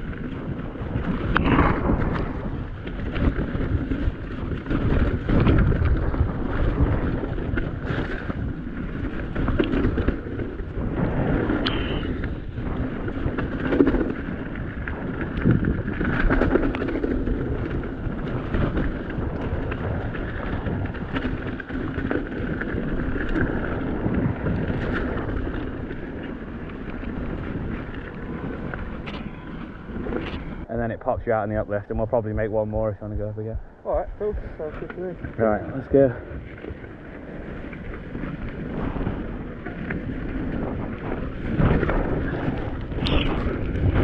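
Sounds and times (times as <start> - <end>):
bike knocks and rattles: 0.0 - 30.5
bike tyres rumbling on trail: 0.0 - 44.0
wind buffeting microphone: 0.0 - 44.0.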